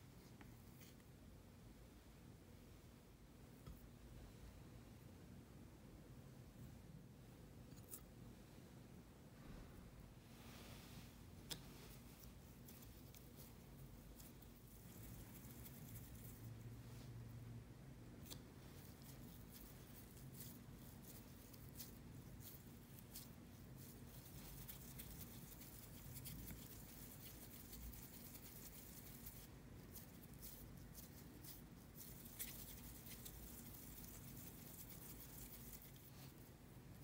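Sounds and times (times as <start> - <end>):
faint low hum: 0.0 - 37.0
hands rolling dough: 10.5 - 17.4, 18.0 - 37.0.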